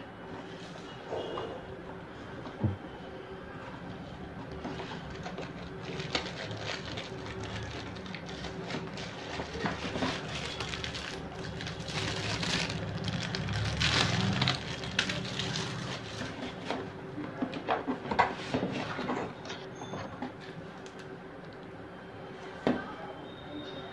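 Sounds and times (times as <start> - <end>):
cardboard rustling and scraping: 4.4 - 20.5.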